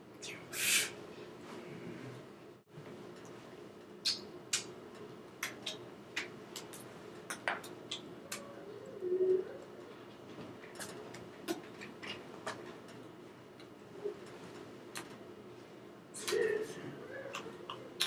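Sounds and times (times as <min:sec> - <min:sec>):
lip and hand clicks: 0:04.0 - 0:04.7, 0:05.4 - 0:08.5.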